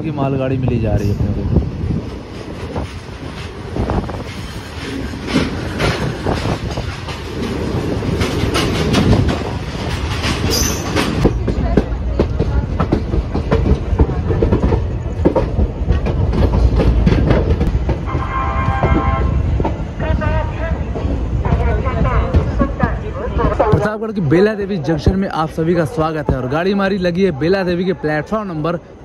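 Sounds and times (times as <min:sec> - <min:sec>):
train wheels clattering over rails: 0:00.9 - 0:19.9, 0:20.9 - 0:24.0.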